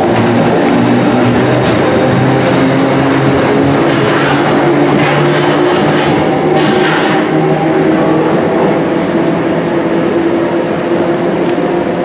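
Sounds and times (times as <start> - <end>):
train wheels rumbling on rails: 0.0 - 12.0
train whine: 0.0 - 12.0.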